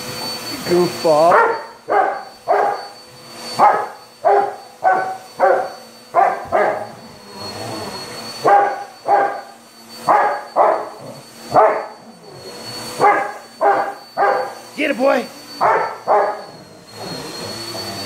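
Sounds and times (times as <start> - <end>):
vacuum cleaner motor humming: 0.0 - 18.0
dog barking: 1.3 - 2.9, 3.6 - 6.9, 8.4 - 9.5, 10.1 - 12.0, 13.0 - 14.6, 15.6 - 16.5.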